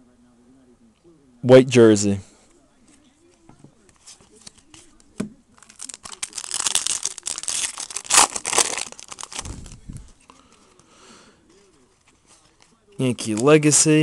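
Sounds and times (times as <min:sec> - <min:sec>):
foil wrapper tearing and crinkling: 0:05.6 - 0:09.8.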